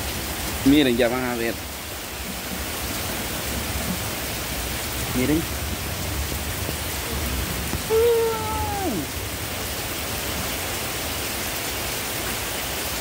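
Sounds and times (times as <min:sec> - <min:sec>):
heavy rain hissing: 0:00.0 - 0:13.0
voice-like call: 0:07.9 - 0:09.2.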